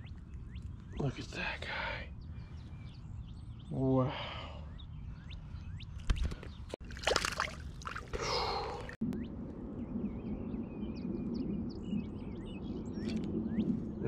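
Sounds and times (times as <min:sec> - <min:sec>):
water splashing and sloshing: 0:06.1 - 0:09.0.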